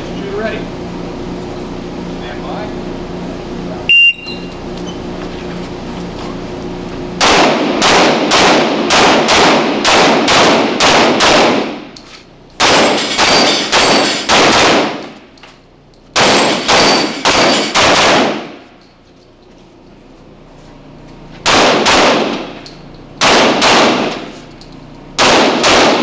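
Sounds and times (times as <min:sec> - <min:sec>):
pistol shots echoing indoors: 0:07.2 - 0:11.8, 0:12.6 - 0:15.2, 0:16.2 - 0:18.7, 0:21.4 - 0:24.4, 0:25.2 - 0:26.0.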